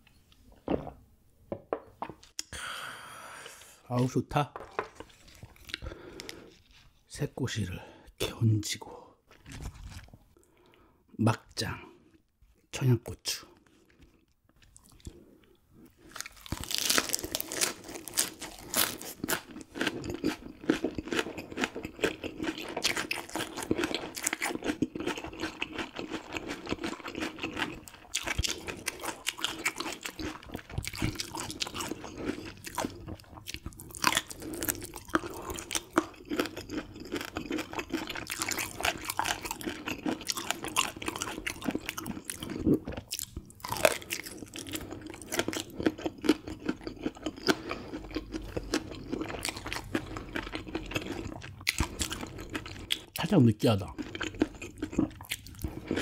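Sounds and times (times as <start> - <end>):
crunchy chewing of bones: 13.7 - 56.0.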